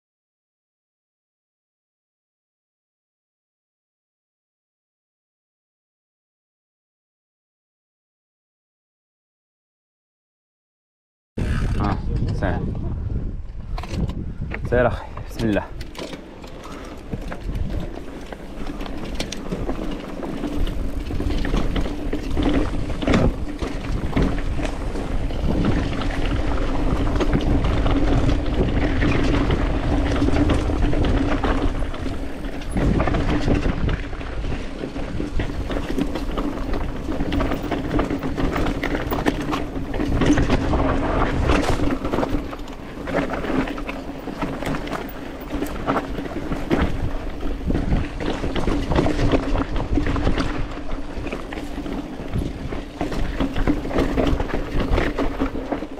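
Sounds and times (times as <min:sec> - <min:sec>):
bike tyres on rocky trail: 0:11.4 - 0:55.9
bike knocking and rattling: 0:13.5 - 0:55.9.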